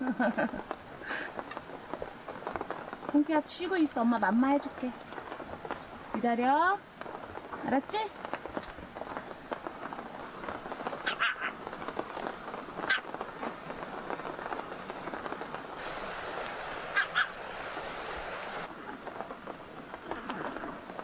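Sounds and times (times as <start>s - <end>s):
rain hissing: 0.0s - 21.0s
small dog yipping: 11.0s - 11.6s, 12.9s - 13.1s, 16.9s - 17.4s.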